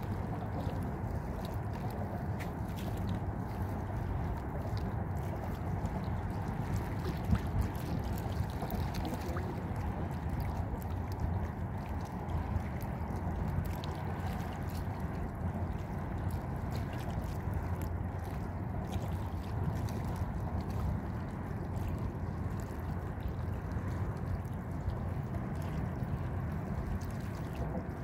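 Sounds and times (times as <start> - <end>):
faint ticks and splashes: 0.0 - 28.0
sea water lapping: 0.0 - 28.0
wind noise on microphone: 0.0 - 28.0.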